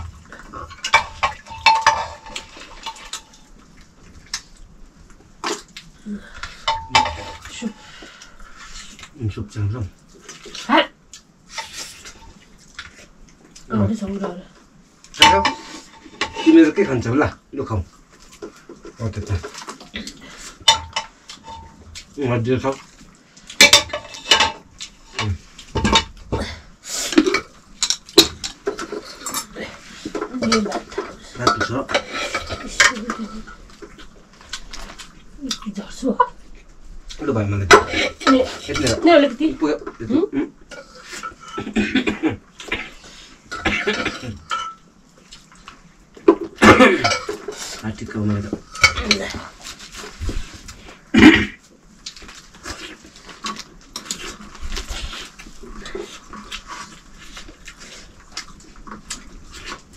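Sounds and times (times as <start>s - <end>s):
metal dishes clattering: 0.0s - 3.4s, 6.6s - 7.8s, 15.2s - 17.0s, 20.6s - 21.8s, 23.6s - 26.2s, 27.2s - 33.6s, 37.6s - 40.0s, 43.5s - 44.8s, 46.3s - 47.8s, 48.6s - 49.4s
metal utensils clinking on pots: 0.6s - 3.4s, 6.6s - 7.8s, 15.2s - 17.0s, 20.6s - 21.8s, 23.6s - 26.2s, 27.2s - 33.6s, 37.7s - 39.3s, 43.5s - 44.8s, 46.6s - 47.6s, 48.6s - 49.4s.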